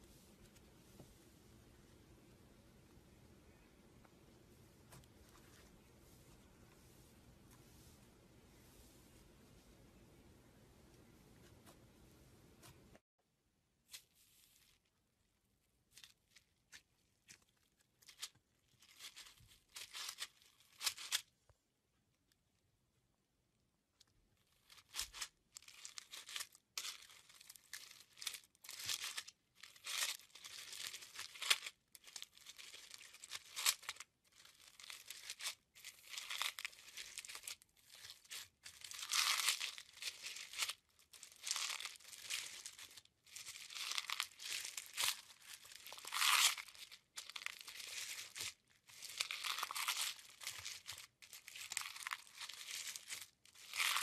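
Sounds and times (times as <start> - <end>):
crunchy slime crackling: 24.6 - 54.0.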